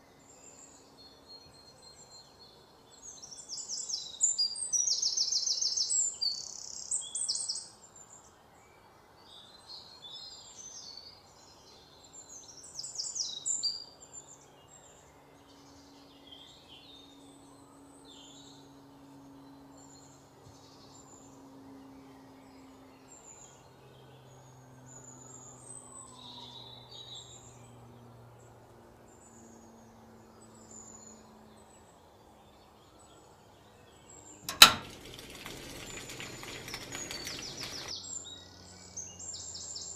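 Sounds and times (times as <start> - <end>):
small birds chirping: 0.0 - 8.4, 29.1 - 39.9.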